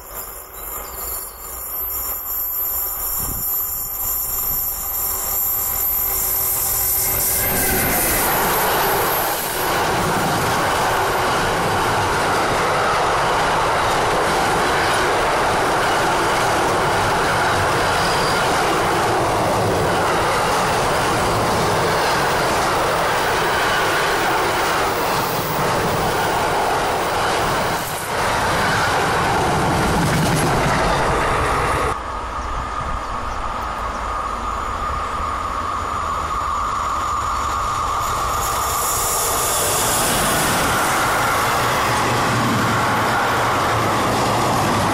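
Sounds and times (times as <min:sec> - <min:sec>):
wheels clacking on rails: 0:00.0 - 0:32.0
distant freight train hum: 0:00.0 - 0:44.9
freight train rolling past: 0:00.0 - 0:44.9.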